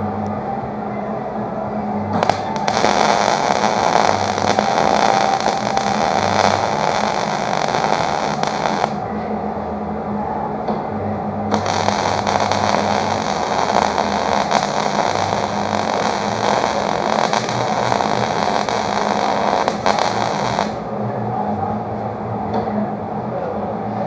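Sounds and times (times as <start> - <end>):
low steady hum: 0.0 - 24.0
welder arc crackling: 2.2 - 9.0, 11.5 - 20.9.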